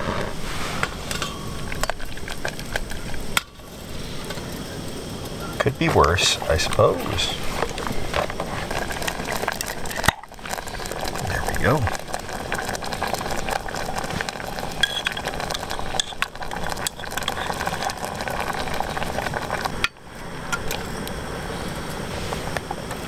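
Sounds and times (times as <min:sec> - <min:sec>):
sizzling: 0:00.0 - 0:23.0
sauce pouring and stirring: 0:06.5 - 0:19.8.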